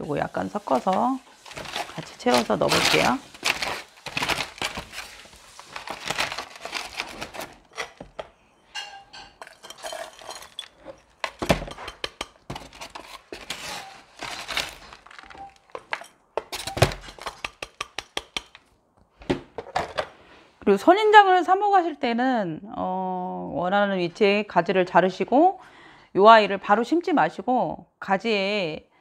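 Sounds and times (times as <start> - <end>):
plastic scoop digging potting mix: 0.0 - 8.2, 9.5 - 17.7
grit rattling against plastic: 0.7 - 8.2.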